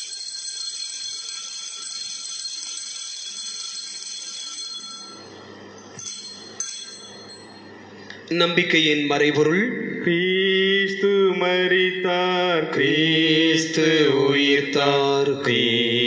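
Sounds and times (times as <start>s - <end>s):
altar bells ringing: 0.0s - 7.8s
sharp bell strikes: 4.6s - 7.8s.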